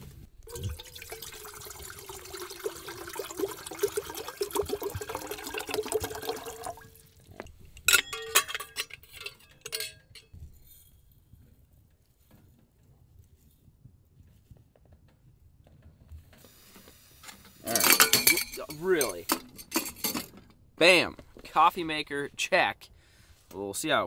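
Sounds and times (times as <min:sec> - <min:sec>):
water pouring into pot: 0:00.4 - 0:07.6
metal clinks: 0:07.8 - 0:10.4, 0:17.7 - 0:20.4.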